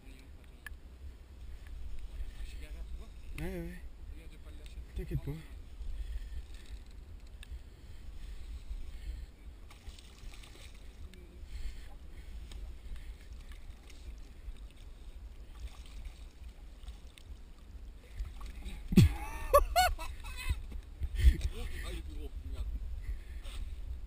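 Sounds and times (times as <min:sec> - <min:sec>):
water lapping against hull: 0:07.6 - 0:19.2.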